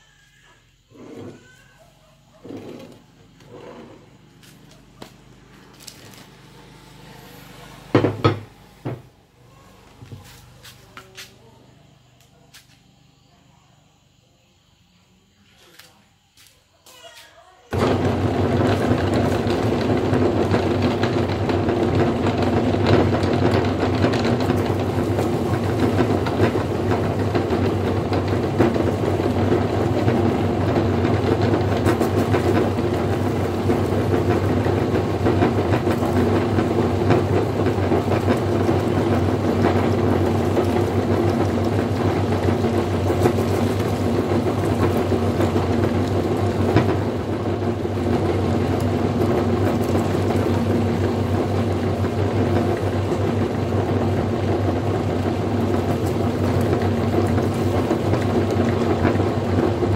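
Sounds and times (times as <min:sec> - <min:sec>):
leaves crunching in grinder: 0:02.8 - 0:07.9, 0:09.8 - 0:11.5, 0:15.6 - 0:59.9
electric meat grinder humming: 0:04.4 - 0:09.0, 0:17.8 - 0:59.9.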